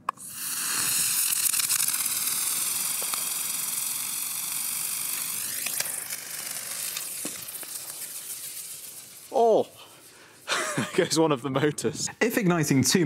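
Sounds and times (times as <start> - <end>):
model rocket motor hissing: 0.1 - 11.0.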